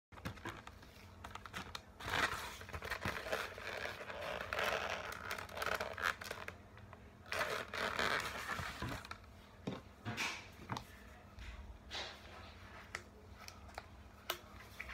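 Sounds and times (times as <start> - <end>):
balloons squeaking and rubbing: 0.2 - 6.6, 7.2 - 9.2.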